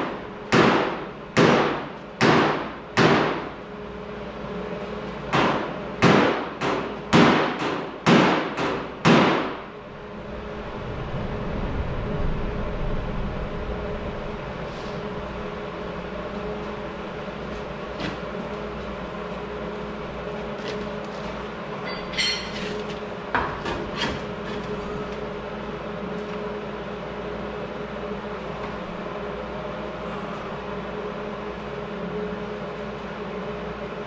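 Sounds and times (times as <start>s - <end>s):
steady low rumble: 9.6s - 17.5s
metal tool striking sheet steel: 21.8s - 22.8s.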